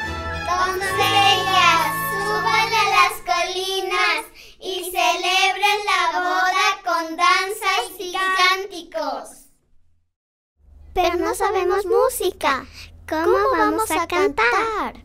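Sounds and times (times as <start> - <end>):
backing music: 0.0 - 3.6
girls singing together: 0.5 - 7.1.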